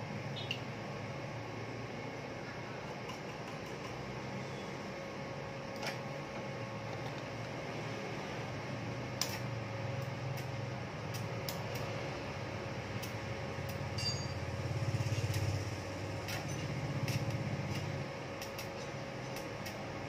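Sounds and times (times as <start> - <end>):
steady low hum: 0.0 - 20.0
metallic clinks of tools: 14.0 - 14.4.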